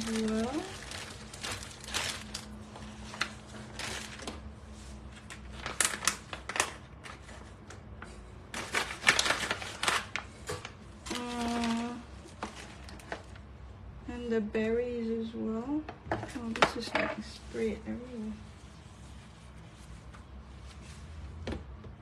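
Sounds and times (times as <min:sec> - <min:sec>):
plastic packaging crinkling: 0:00.0 - 0:04.5, 0:05.1 - 0:07.6, 0:08.5 - 0:13.5.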